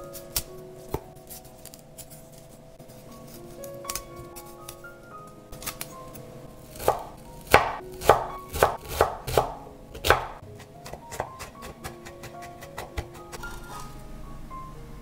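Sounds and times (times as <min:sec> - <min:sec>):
knife chopping on wooden board: 0:06.7 - 0:13.9.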